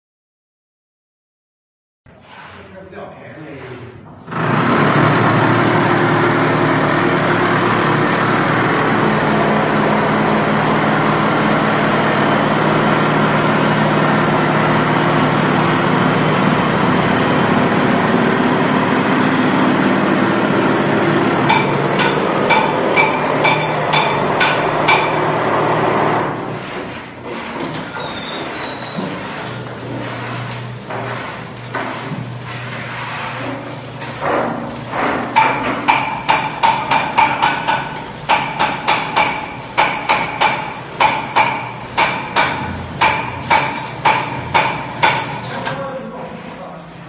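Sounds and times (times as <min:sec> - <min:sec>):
machine motor drone with rattle: 0:04.2 - 0:47.0
sharp knocks: 0:21.4 - 0:25.2, 0:34.2 - 0:45.4.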